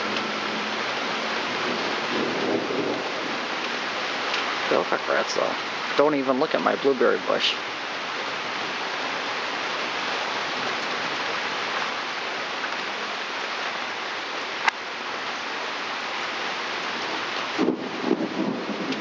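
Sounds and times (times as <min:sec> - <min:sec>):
low rumble of thunder: 0:00.0 - 0:06.0, 0:17.5 - 0:19.0
heavy rain on wooden deck: 0:00.0 - 0:19.0.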